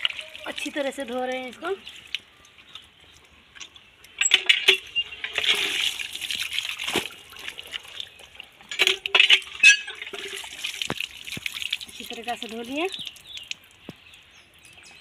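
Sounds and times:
water splashing: 0.0s - 15.0s.

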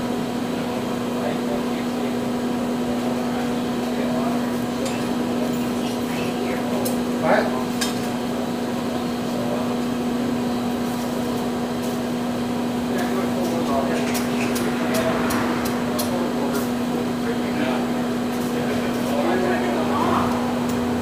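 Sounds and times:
steady low hum: 10.8s - 21.0s
pitch-bending short sound: 14.3s - 17.6s.

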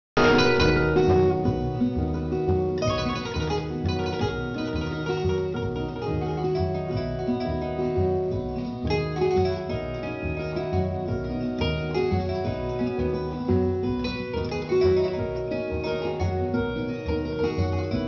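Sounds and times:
bass beat: 0.2s - 18.0s
plucked-string melody: 0.2s - 18.0s.

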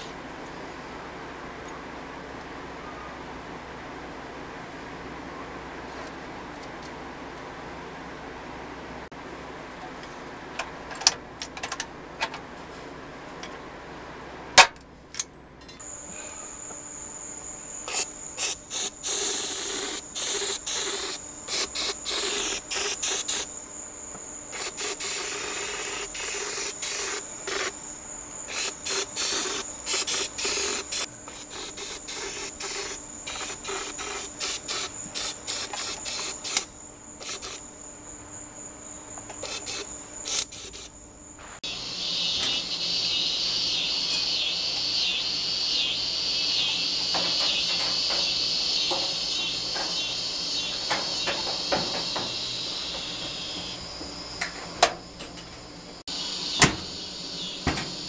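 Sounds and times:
spray gun hissing: 17.9s - 23.5s, 41.6s - 54.4s.

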